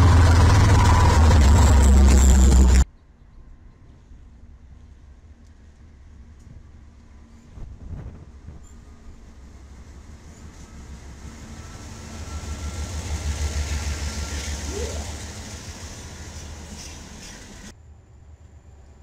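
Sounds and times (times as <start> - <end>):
freight cars passing: 0.0 - 2.8, 8.9 - 17.7
diesel locomotive engine rumble: 0.0 - 2.9, 3.9 - 19.0.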